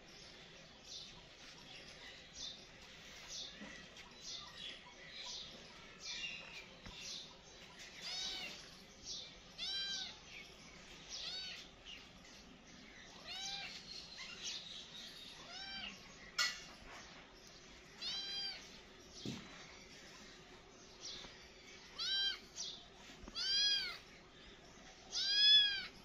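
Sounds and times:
kitten meowing: 23.4 - 24.0, 25.2 - 25.9.

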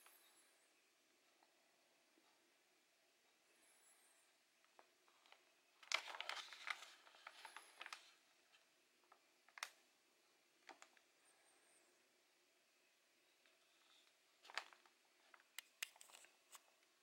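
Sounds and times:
soft handling rustles and ticks: 4.6 - 9.8, 13.4 - 17.0.

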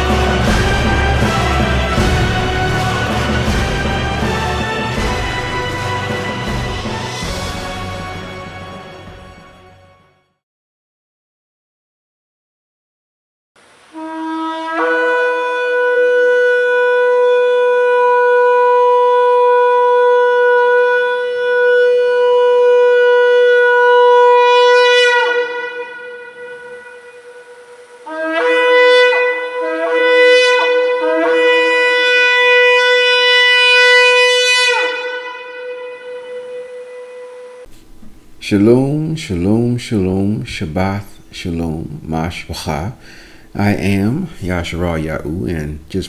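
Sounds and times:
shofar blasts: 0.0 - 10.2, 13.7 - 44.2.

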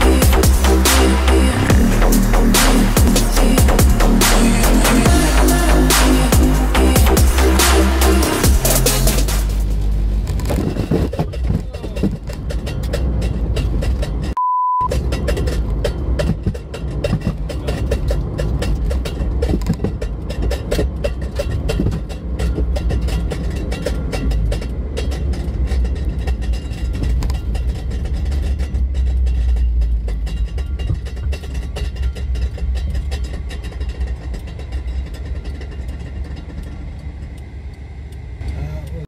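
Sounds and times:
engine and road rumble: 0.0 - 39.0
small knocks and rattles: 10.2 - 37.5
short steady bleep: 14.4 - 14.9.

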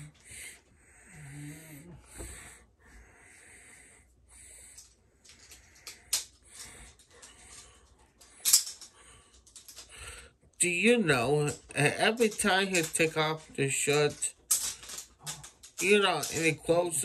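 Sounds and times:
person breathing wheezily: 0.0 - 10.4.

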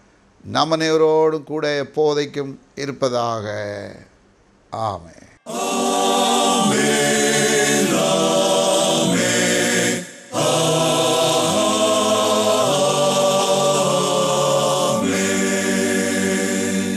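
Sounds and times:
choir singing held chords: 5.5 - 16.9.

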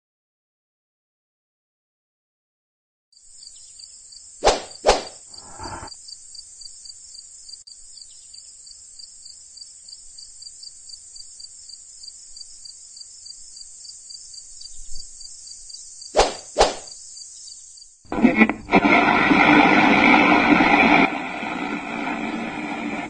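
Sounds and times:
crickets chirping: 3.2 - 18.1.

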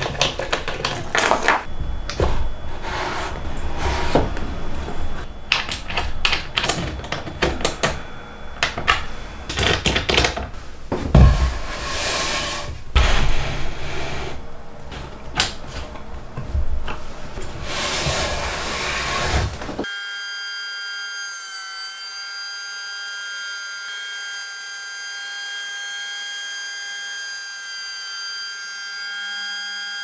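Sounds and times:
board sliding across plywood: 2.7 - 4.3, 10.9 - 14.4
heavy thump: 10.9 - 11.7, 12.7 - 13.4.

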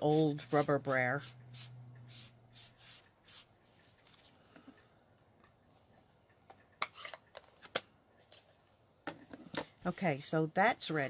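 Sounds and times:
sponge brushing on cardstock: 0.0 - 3.8.

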